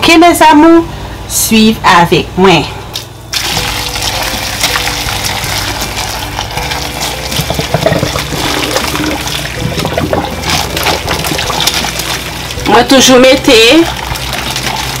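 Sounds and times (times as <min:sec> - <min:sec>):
hot water pouring and splashing: 0:03.3 - 0:15.0.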